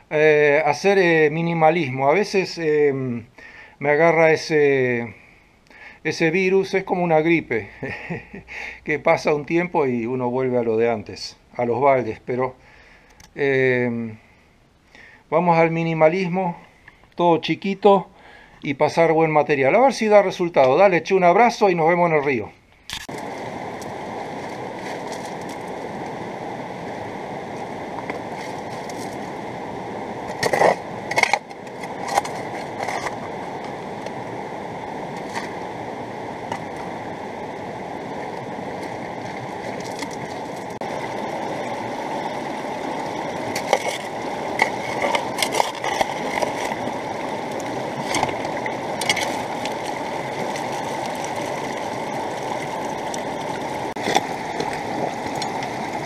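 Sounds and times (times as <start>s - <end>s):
river rushing: 23.1s - 56.0s
stones clacking against metal sluice: 43.5s - 46.9s, 48.0s - 51.8s.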